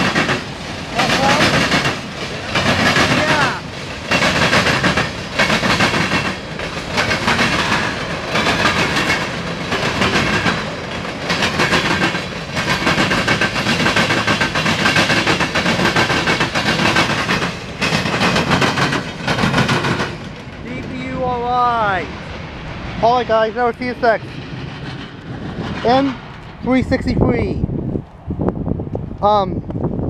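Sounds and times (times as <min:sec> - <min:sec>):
train wheels clattering over rail joints: 0:00.0 - 0:21.3, 0:23.3 - 0:26.8.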